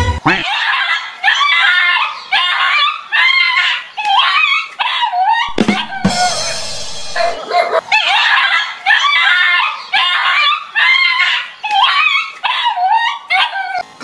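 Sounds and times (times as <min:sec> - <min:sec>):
harsh yelp: 0:00.3 - 0:13.8
dog barking: 0:07.1 - 0:08.7.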